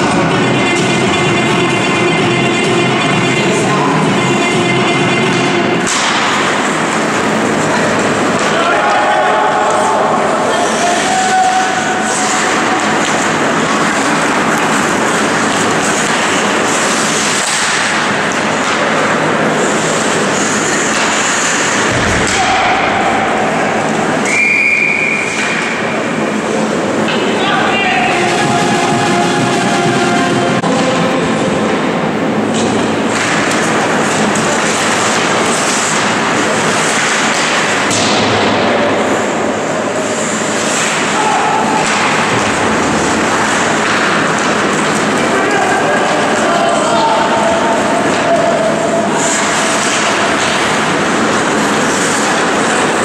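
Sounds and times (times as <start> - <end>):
skates and play on ice: 5.1 - 53.0
sharp knock: 21.8 - 23.6
referee whistle: 24.2 - 25.7.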